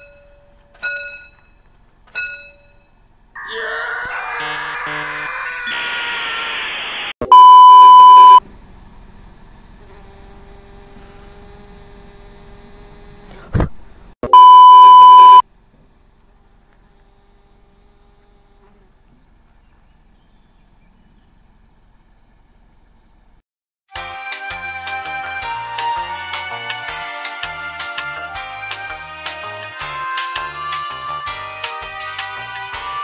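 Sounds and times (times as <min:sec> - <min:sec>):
steady buzz: 0:06.6 - 0:13.4
loud test tone beeps: 0:07.2 - 0:08.4, 0:14.2 - 0:15.4.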